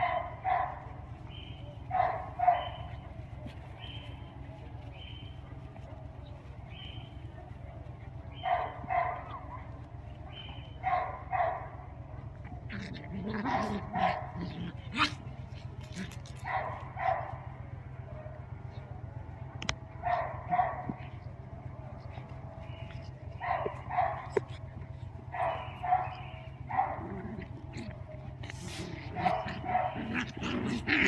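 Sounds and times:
dog play-barking: 0.0 - 4.2, 8.3 - 11.9, 12.6 - 17.6, 20.0 - 21.2, 22.0 - 31.0.

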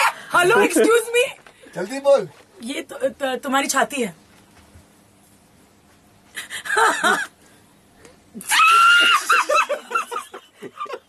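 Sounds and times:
person laughing: 6.4 - 7.3, 8.4 - 11.0.

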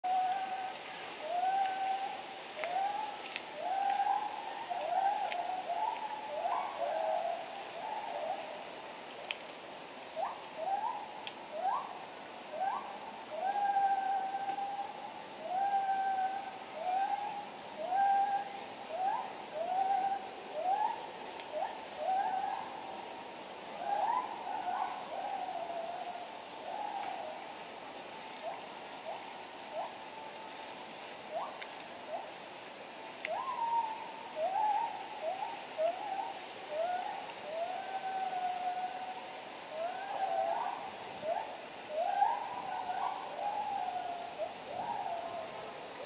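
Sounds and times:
insect chorus: 0.0 - 46.0.

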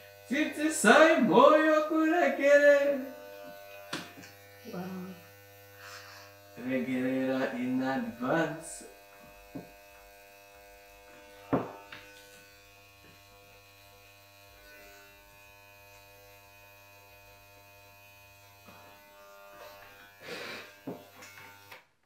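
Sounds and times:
hair clippers buzzing: 0.0 - 22.0.

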